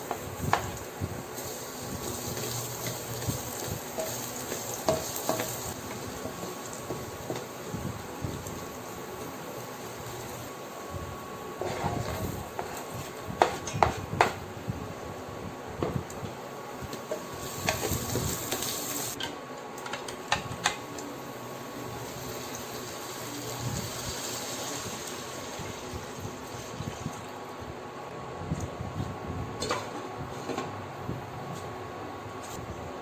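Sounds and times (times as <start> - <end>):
onion scraped into sizzling oil: 1.2 - 7.2.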